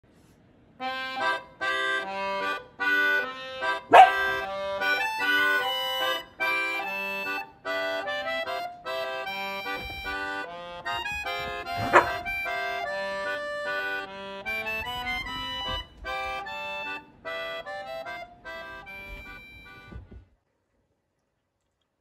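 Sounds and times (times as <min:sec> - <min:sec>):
bouncy instrumental music: 0:00.8 - 0:20.2
dog bark: 0:03.9 - 0:04.4, 0:11.8 - 0:12.3.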